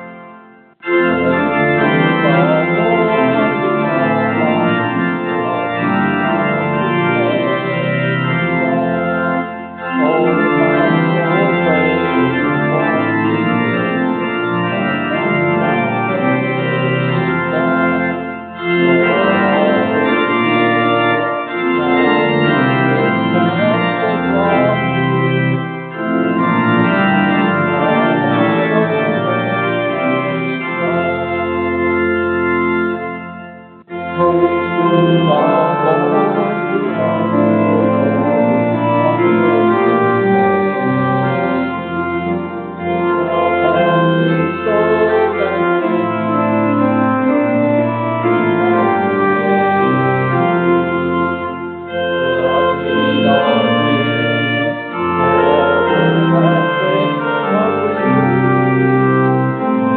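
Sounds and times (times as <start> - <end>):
church organ playing a hymn: 0.0 - 59.9.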